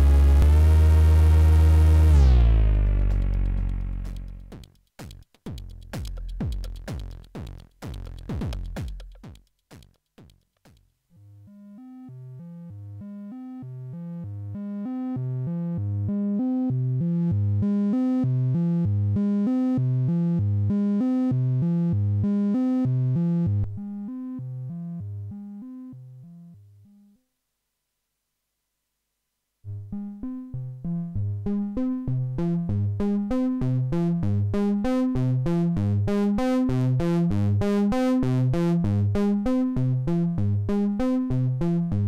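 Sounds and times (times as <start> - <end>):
distorted drum machine kicks: 2.2 - 10.8.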